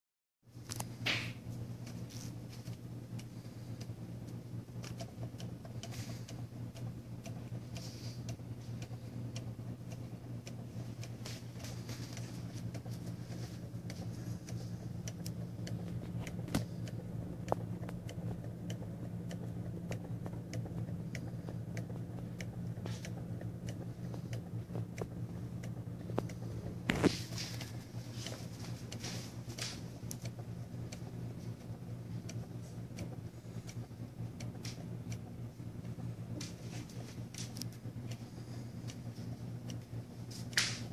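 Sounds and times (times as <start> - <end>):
steady low hum: 0.5 - 40.9
faint uneven ticks of linkage: 0.6 - 40.9.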